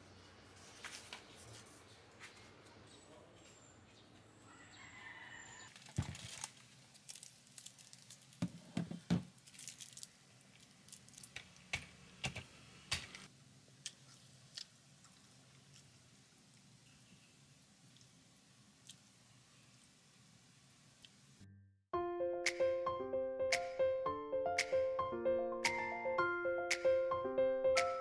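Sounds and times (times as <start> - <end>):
small objects clicking and knocking: 5.7 - 13.2.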